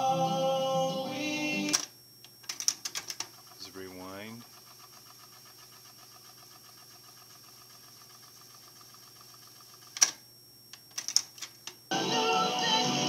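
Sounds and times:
cassette deck rewinding whir: 0.0 - 10.2.

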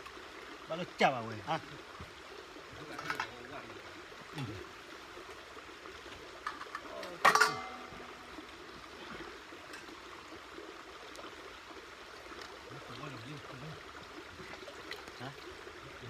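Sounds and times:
steady background hiss: 0.0 - 16.0
light metal clinks: 6.5 - 8.1.

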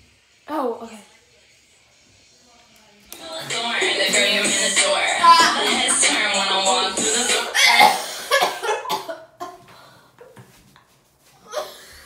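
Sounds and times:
music: 3.1 - 7.9
girl coughing: 7.4 - 9.6.

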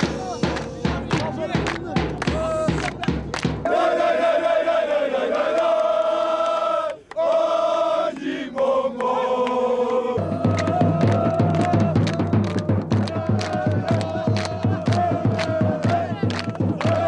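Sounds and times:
big drum strikes: 0.0 - 3.7, 10.2 - 17.0
men singing a chant: 0.0 - 17.0.

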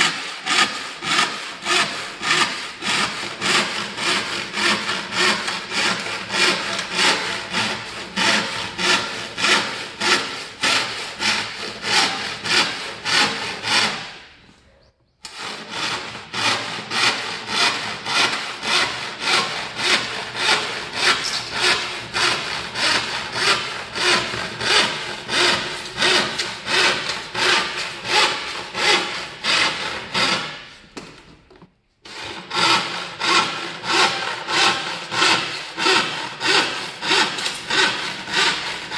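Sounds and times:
handsaw rasping through wood: 0.0 - 14.3, 15.2 - 30.8, 32.0 - 38.9.

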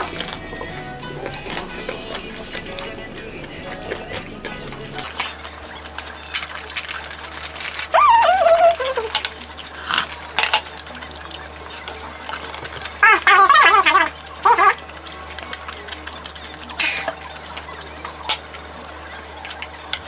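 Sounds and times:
plastic film crinkling: 5.0 - 20.0
person humming mmm: 7.9 - 10.2.

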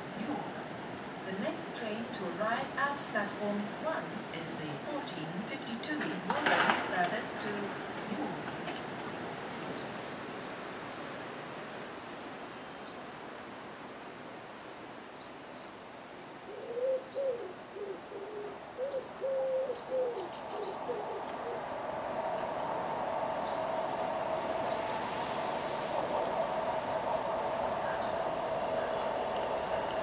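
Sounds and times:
approaching diesel train: 0.0 - 12.5, 19.2 - 30.0
pigeon cooing: 16.5 - 21.6.

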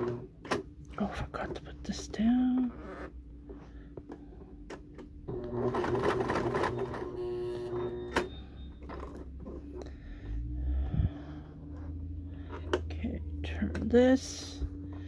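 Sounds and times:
sewing machine stitching: 0.0 - 0.6, 5.3 - 9.7.

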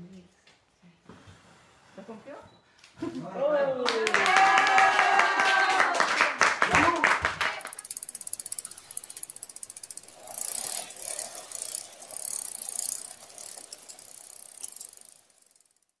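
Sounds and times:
bicycle freewheel clicking: 7.4 - 16.0.

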